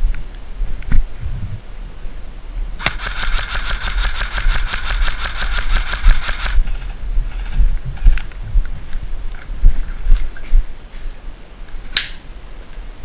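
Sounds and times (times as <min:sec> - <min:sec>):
airsoft gun full-auto burst: 0:02.8 - 0:06.7.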